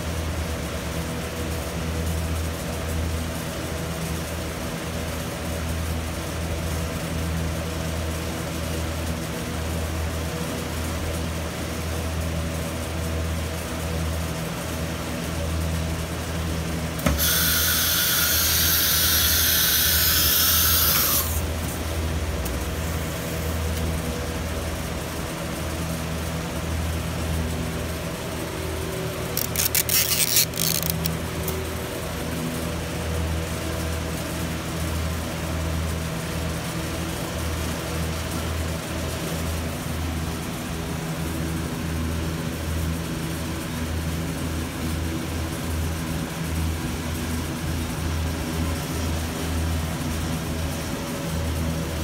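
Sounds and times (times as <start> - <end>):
cnc router humming: 16.9 - 23.9.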